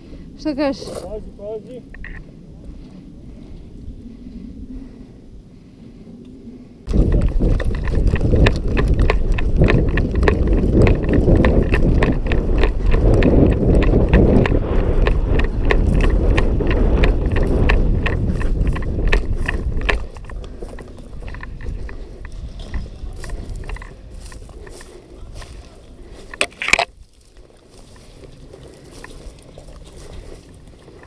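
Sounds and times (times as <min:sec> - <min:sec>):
heavy low rumble: 0:00.0 - 0:27.1
gear rattling: 0:06.9 - 0:25.0
running footsteps on rubble: 0:06.9 - 0:31.0.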